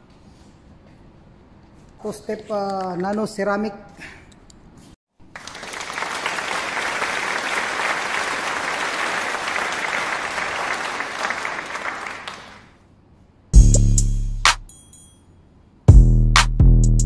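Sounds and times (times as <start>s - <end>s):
crowd applause: 5.2s - 12.8s.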